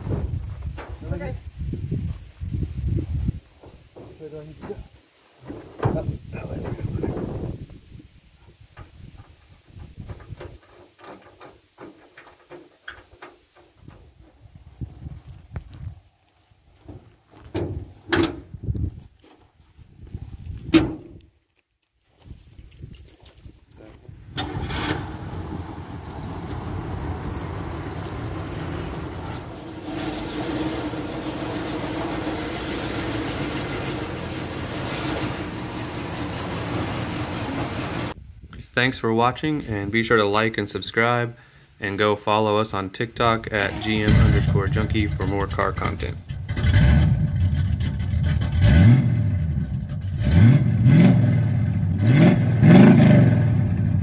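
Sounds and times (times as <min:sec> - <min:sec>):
car engine running at low speed: 0:24.9 - 0:38.2.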